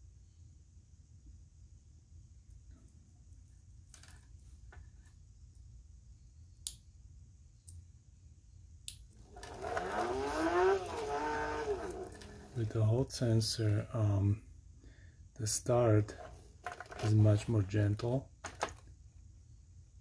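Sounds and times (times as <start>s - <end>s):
electric motor whining hum: 9.2s - 12.9s, 15.8s - 17.7s.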